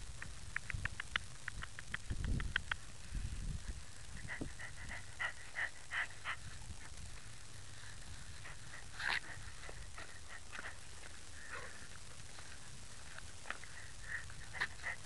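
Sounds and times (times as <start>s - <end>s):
dog panting: 4.2s - 7.0s, 7.9s - 15.0s.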